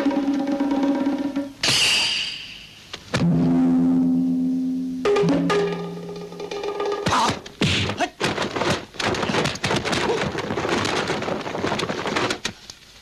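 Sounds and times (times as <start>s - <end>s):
punch and kick thuds: 7.6s - 10.8s.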